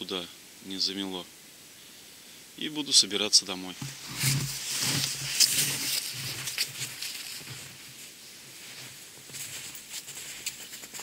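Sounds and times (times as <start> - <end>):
footsteps crunching in snow: 3.8 - 11.0
padded snowsuit rustling: 3.8 - 11.0.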